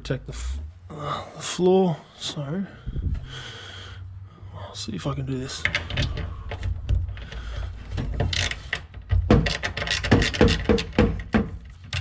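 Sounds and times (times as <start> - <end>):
hand tools clicking and scraping metal: 5.5 - 12.0.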